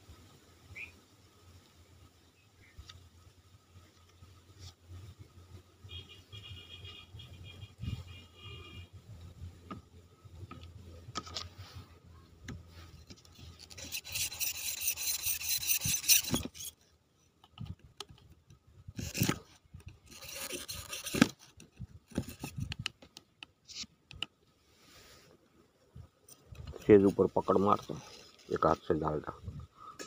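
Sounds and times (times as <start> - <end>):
hand tool scraping clay pot: 13.0 - 16.8, 18.9 - 23.0.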